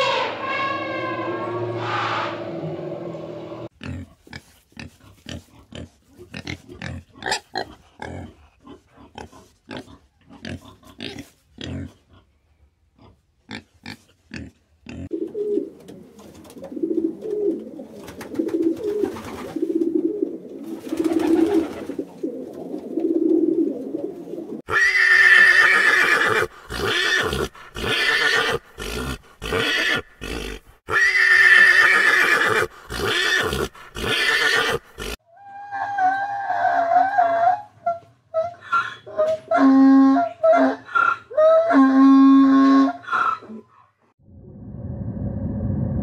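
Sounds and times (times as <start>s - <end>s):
pigs grunting: 13.0s - 15.2s, 26.3s - 31.7s, 32.5s - 35.2s
pigeon cooing: 15.1s - 24.6s
pony neighing: 24.7s - 35.2s.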